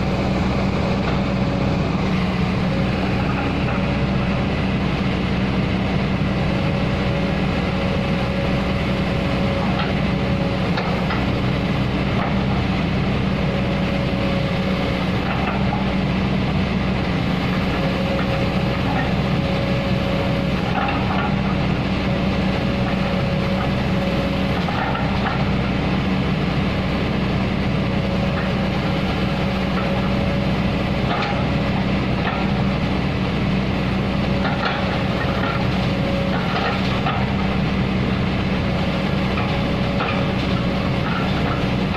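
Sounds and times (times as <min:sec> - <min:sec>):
excavator diesel engine running: 0:00.0 - 0:41.9
hydraulic whine: 0:00.0 - 0:41.9.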